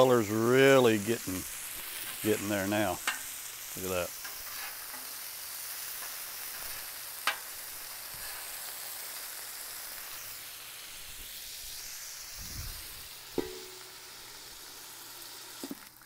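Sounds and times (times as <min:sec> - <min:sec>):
meat sizzling on a griddle: 0:00.0 - 0:16.0
metal dome clanking down: 0:13.4 - 0:13.9.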